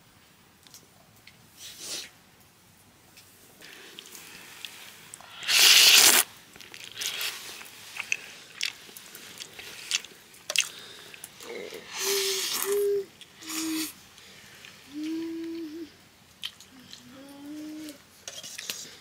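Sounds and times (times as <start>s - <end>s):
person chewing with crunches: 3.6s - 15.2s, 16.3s - 17.1s.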